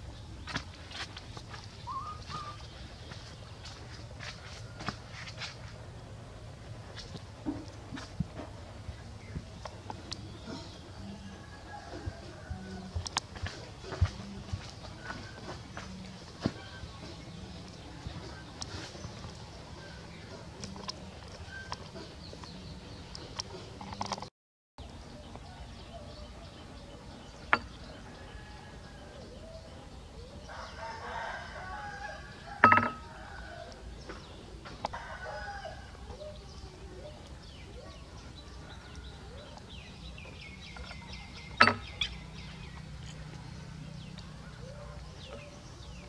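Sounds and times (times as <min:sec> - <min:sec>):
rooster crowing: 0:10.9 - 0:13.0, 0:28.0 - 0:29.4, 0:30.5 - 0:33.8, 0:34.9 - 0:36.5.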